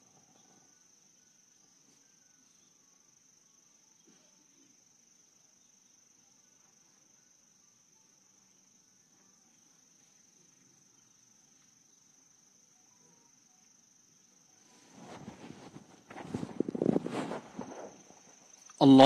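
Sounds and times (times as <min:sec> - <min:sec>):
crickets chirping: 0:00.0 - 0:19.0
clothing rustling and shuffling: 0:14.6 - 0:18.6.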